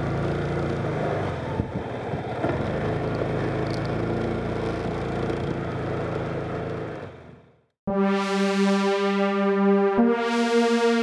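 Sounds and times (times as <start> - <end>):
motorcycle engine running: 0.0 - 7.6.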